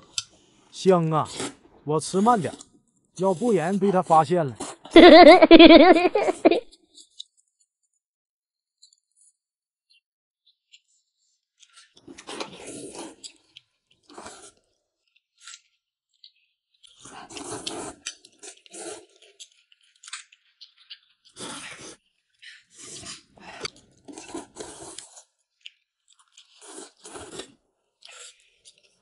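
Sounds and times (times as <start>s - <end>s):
noodles being slurped and chewed: 0.1s - 5.0s, 11.6s - 29.0s.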